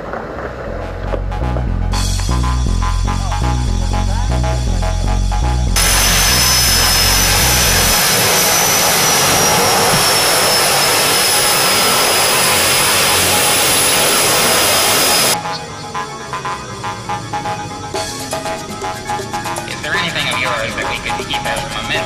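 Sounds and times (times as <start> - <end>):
propeller engines running: 4.5 - 22.0
high turbine whine: 5.7 - 18.0.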